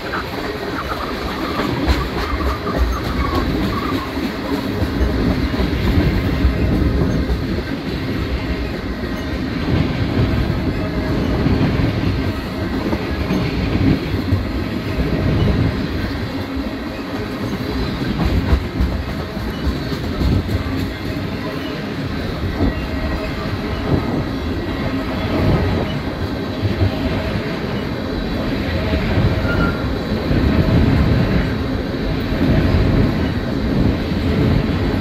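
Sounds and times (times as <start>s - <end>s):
wheels clickety-clack: 0.0s - 24.3s
train wheels rumbling on rail: 0.0s - 35.0s.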